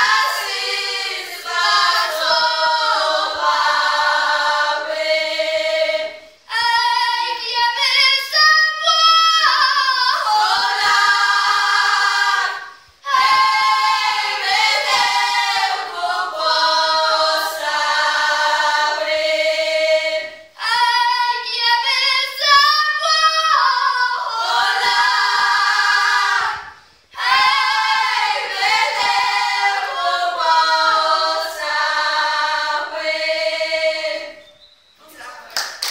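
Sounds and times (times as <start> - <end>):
women singing a cappella: 0.0 - 35.5.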